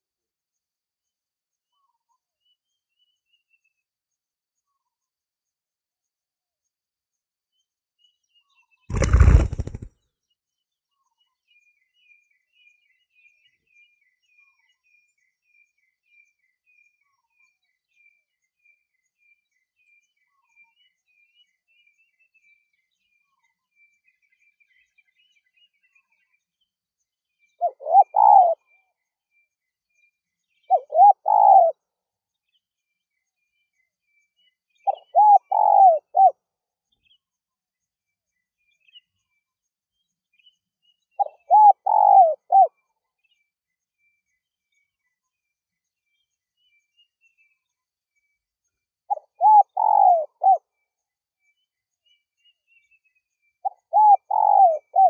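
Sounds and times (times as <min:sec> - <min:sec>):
dove cooing: 0:08.9 - 0:09.9, 0:27.7 - 0:28.6, 0:30.7 - 0:31.7, 0:35.1 - 0:36.3, 0:41.2 - 0:42.7, 0:49.4 - 0:50.6, 0:53.9 - 0:55.0.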